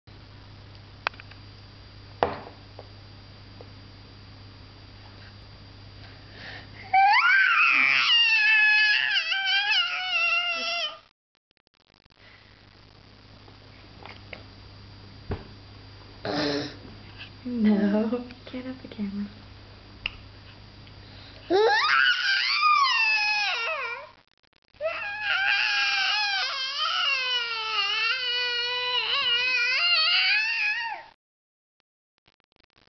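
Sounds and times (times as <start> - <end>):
baby squealing: 7.0 - 11.0, 21.5 - 24.1, 24.8 - 31.1.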